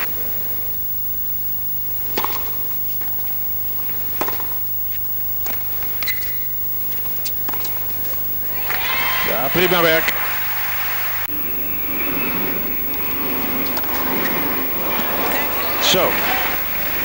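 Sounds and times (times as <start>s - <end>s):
shoe squeak on court: 6.0s - 6.5s
crowd hum: 8.0s - 17.0s.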